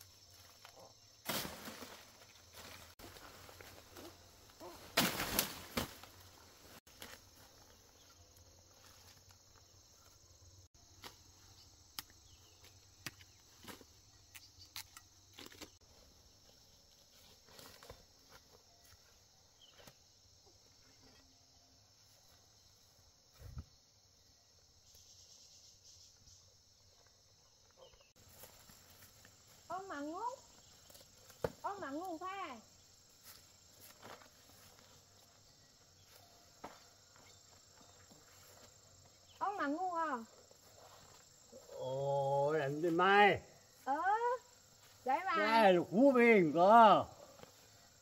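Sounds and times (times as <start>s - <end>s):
rustling of vegetation: 0.0s - 23.9s, 24.6s - 48.0s
insects chirring: 0.0s - 48.0s
leaves and twigs snapping: 0.3s - 7.5s.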